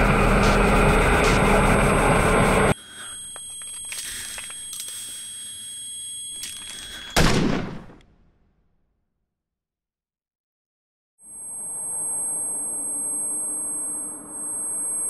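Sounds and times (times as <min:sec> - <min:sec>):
loud dense roar: 0:00.0 - 0:02.8
handgun shot: 0:07.2 - 0:08.0.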